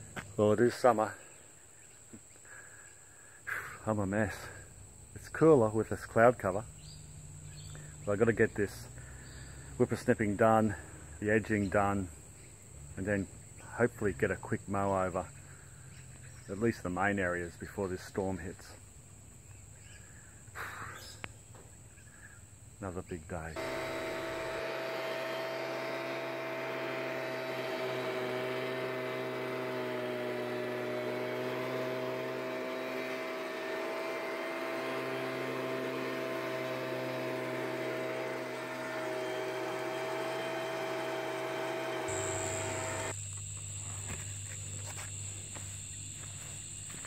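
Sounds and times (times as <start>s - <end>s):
crickets chirring: 0.0s - 23.6s, 42.2s - 47.0s
leaf blower engine running: 2.5s - 15.9s, 23.4s - 47.0s.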